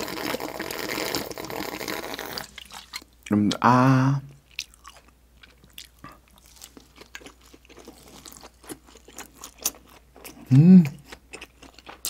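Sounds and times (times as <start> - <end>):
crunchy chewing: 4.5 - 12.0.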